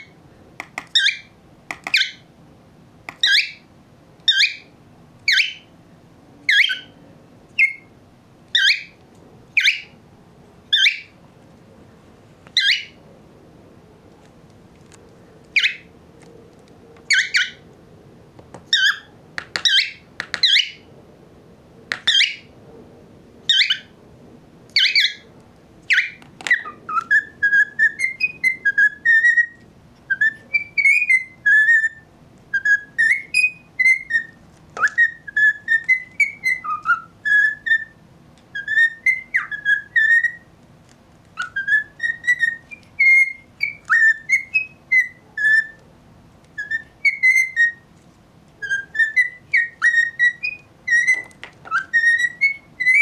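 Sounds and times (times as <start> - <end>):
cockatiel calling and singing: 0.0 - 2.3, 3.1 - 5.7, 6.5 - 7.9, 8.5 - 10.0, 10.7 - 11.2, 12.5 - 13.0, 15.5 - 15.9, 17.0 - 17.7, 18.6 - 20.9, 21.9 - 22.5, 23.5 - 24.0, 24.7 - 40.5, 41.4 - 45.8, 46.5 - 47.9, 48.6 - 53.0.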